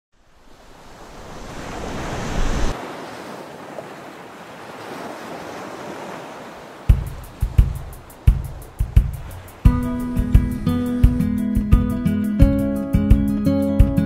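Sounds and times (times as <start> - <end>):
surf washing onto beach: 0.2 - 11.8
wind buffeting microphone: 4.9 - 11.9.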